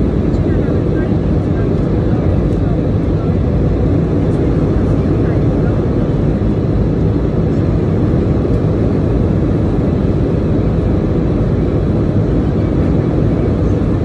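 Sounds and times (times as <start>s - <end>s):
airliner cabin drone: 0.0s - 14.0s.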